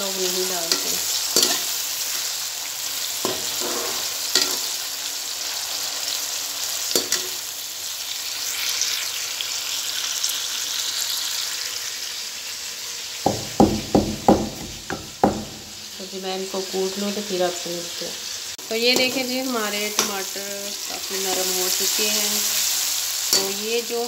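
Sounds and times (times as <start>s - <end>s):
vegetables sizzling in hot oil: 0.0s - 24.0s
metal spoon clicking against pan: 0.7s - 1.7s, 7.0s - 7.3s, 23.3s - 23.6s
wooden pestle pounding in mortar: 13.3s - 15.6s.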